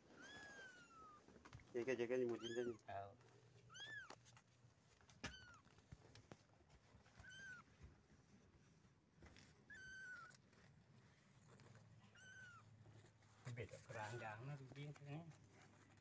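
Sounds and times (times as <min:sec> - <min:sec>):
kittens mewing: 0:00.0 - 0:01.4, 0:02.2 - 0:02.9, 0:03.5 - 0:04.4, 0:05.2 - 0:05.8, 0:07.1 - 0:07.8, 0:09.6 - 0:10.5, 0:11.9 - 0:12.9.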